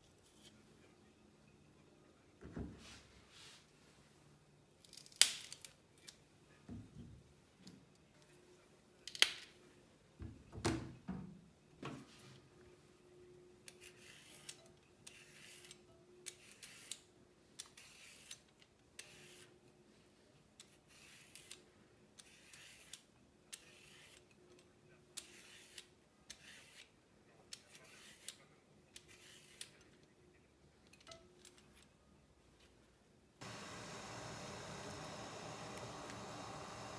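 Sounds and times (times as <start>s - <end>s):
vegetable peeler scraping asparagus: 13.7s - 17.0s, 19.0s - 19.5s, 20.8s - 21.6s, 22.2s - 23.0s, 23.6s - 24.3s, 25.2s - 26.9s, 27.6s - 28.4s, 29.0s - 29.7s.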